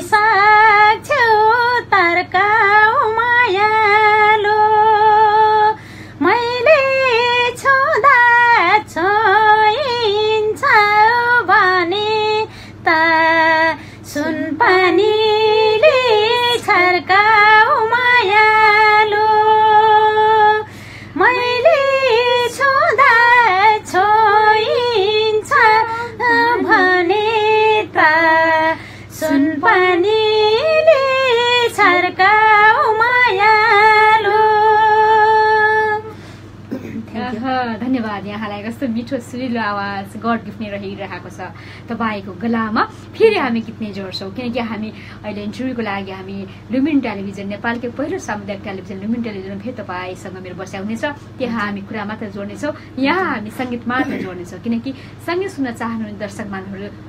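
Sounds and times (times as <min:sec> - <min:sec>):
woman singing solo: 0:06.3 - 0:36.0.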